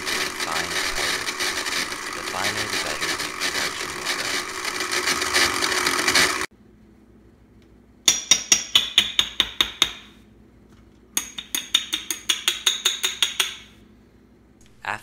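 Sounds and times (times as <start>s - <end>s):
blender grinding: 0.0s - 6.5s
spoon tapping glass jar: 11.2s - 13.7s.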